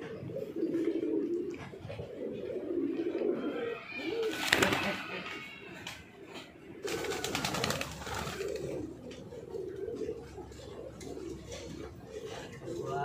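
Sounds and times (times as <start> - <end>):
pigeons cooing: 0.0 - 13.0
pigeon wings fluttering: 4.1 - 6.0, 6.8 - 9.1.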